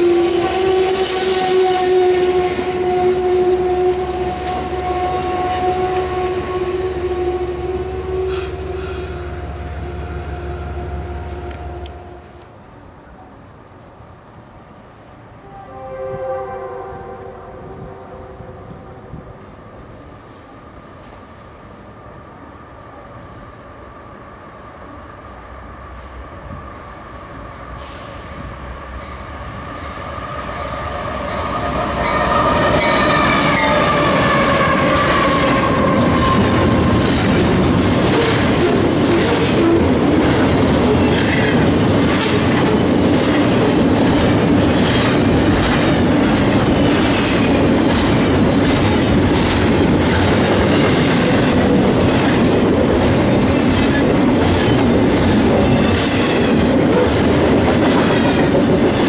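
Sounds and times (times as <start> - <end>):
diesel locomotive passing: 0.0 - 59.0
train cars rumbling past: 0.0 - 59.0
wheels clacking over rail joints: 31.2 - 59.0.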